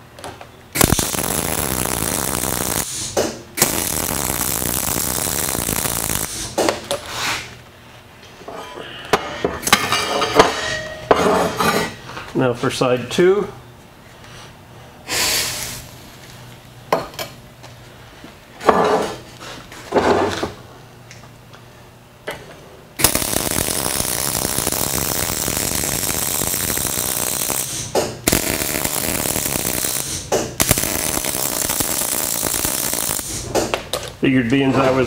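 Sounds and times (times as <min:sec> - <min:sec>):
welder arc crackling: 0:00.8 - 0:07.0, 0:23.0 - 0:33.8.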